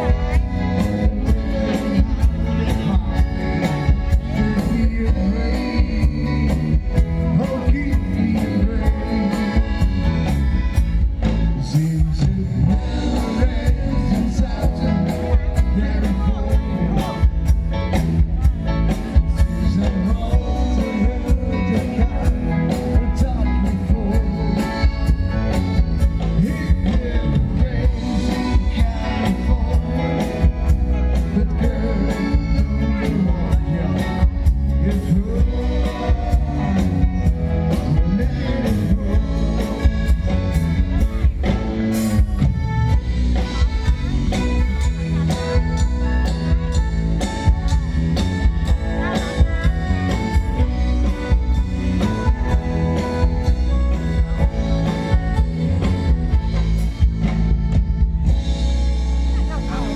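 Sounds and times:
person singing: 0.0s - 45.9s
electric guitars: 0.0s - 59.9s
steady drum beat: 0.0s - 59.9s.

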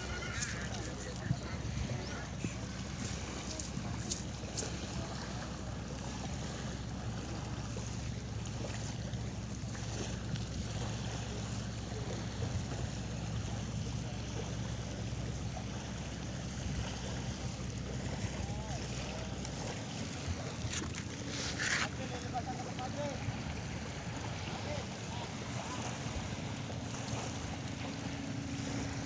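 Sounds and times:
wind buffeting microphone: 0.0s - 6.6s
constant low rumble: 0.0s - 29.0s
surf: 0.0s - 29.0s.

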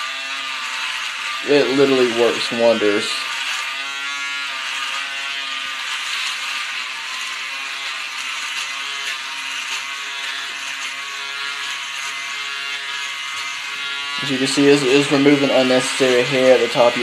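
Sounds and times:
electric shaver buzzing: 0.0s - 17.0s.

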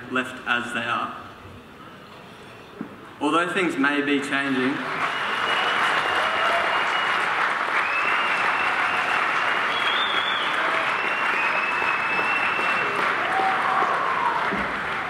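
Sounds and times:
audience applauding: 4.6s - 15.0s
long high whistles: 5.0s - 14.5s.

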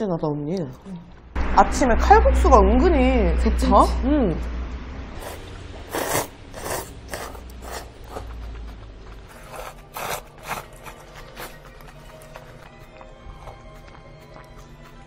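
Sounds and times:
short rasping eating noises: 5.2s - 15.0s.

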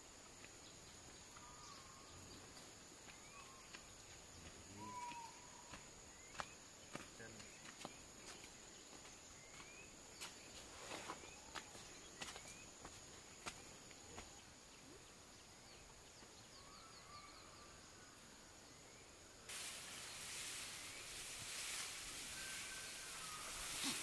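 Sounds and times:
loud hiss: 19.5s - 24.0s.

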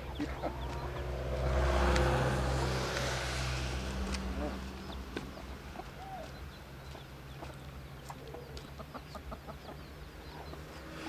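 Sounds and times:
chickens clucking: 0.0s - 2.2s, 4.2s - 11.0s
low steady hum: 0.0s - 8.0s.

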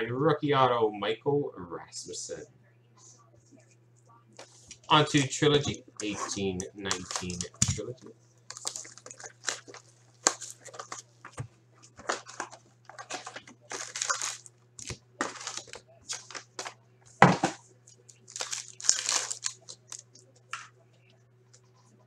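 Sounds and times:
faint low hum: 0.0s - 22.0s
foil wrappers crinkling: 4.4s - 20.6s.

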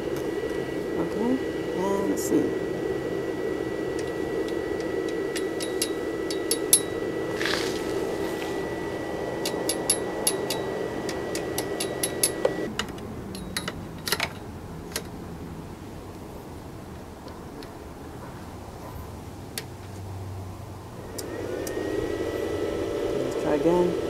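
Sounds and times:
fan hum with high whine: 0.0s - 24.0s
electrode tapping metal clicks: 4.0s - 6.9s, 9.4s - 15.1s.

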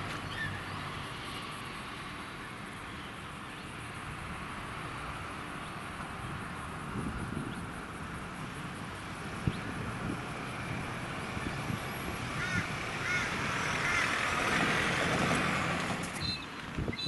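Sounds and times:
steady outdoor hiss: 0.0s - 17.0s
wind buffeting microphone: 6.2s - 17.0s
bird calling: 12.4s - 14.2s.

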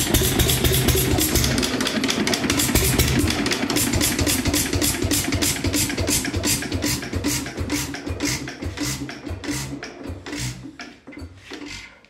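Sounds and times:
stationary engine running: 0.0s - 10.8s.

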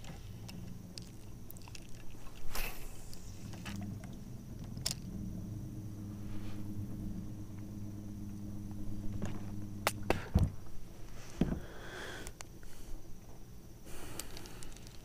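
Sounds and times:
electric motor humming: 0.0s - 10.9s.

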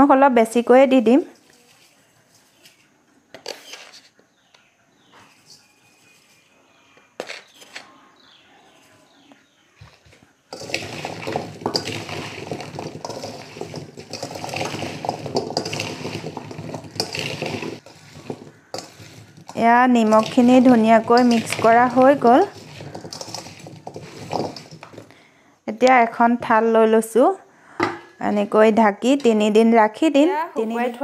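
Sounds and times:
spoon clattering in steel bowl: 10.5s - 25.1s.

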